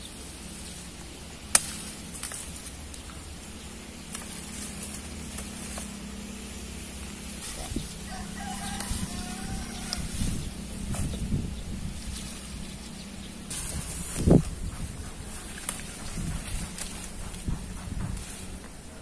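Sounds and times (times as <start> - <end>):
steady low hum: 0.0 - 19.0
leaf stalks snapping: 0.6 - 18.8
chicken calling faintly: 7.4 - 10.4.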